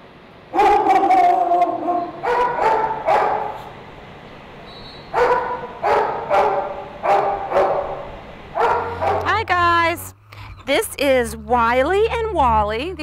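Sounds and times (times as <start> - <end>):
dog barking: 0.6 - 3.7, 5.1 - 9.3.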